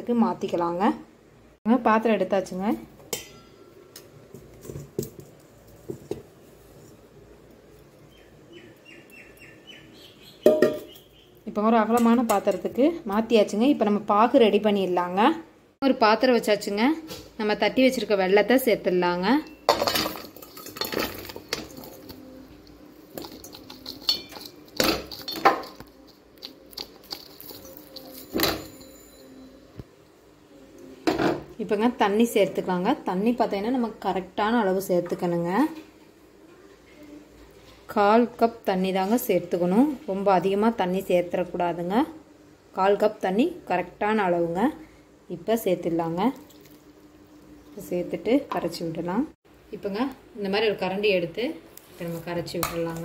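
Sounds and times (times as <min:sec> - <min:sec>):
light knocks of metal bowl: 0:10.4 - 0:10.9.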